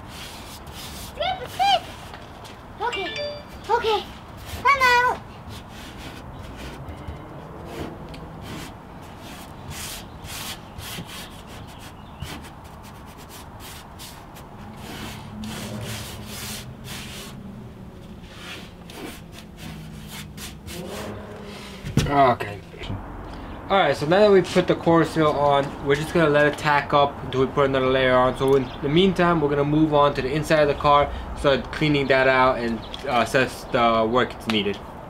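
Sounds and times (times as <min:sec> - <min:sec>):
gloved hand rubbing metal: 0:18.1 - 0:21.8.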